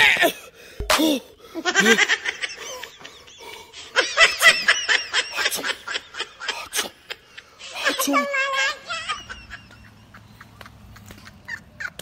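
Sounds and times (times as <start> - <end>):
high-pitched giggling: 1.6 - 12.0.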